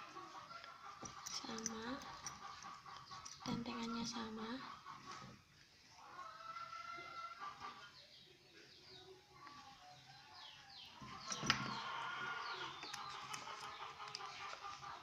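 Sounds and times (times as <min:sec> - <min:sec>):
birds chirping: 0:06.2 - 0:15.0.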